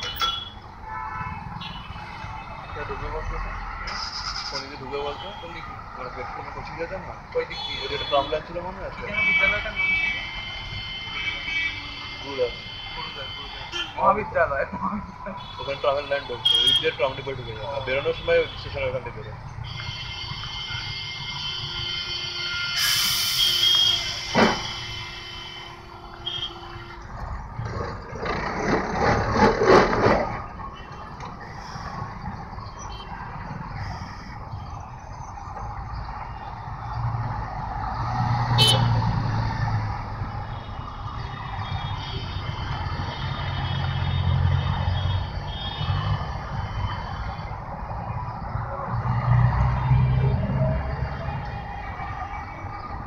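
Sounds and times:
street traffic: 0:00.0 - 0:53.0
bus engine hum: 0:19.0 - 0:53.0
sharp knock: 0:24.3 - 0:24.8.

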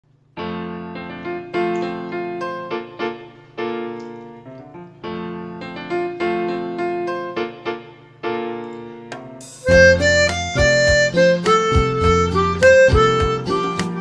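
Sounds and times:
piano chords: 0:00.1 - 0:14.0.

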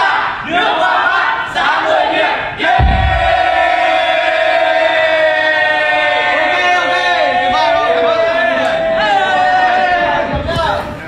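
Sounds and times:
low thump: 0:02.7 - 0:03.8.

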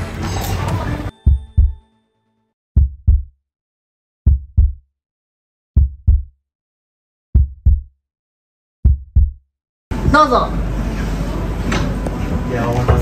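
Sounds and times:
heartbeat thumps: 0:01.2 - 0:01.8, 0:02.8 - 0:03.3, 0:04.2 - 0:04.8, 0:05.8 - 0:06.3, 0:07.4 - 0:07.9, 0:08.8 - 0:09.4.

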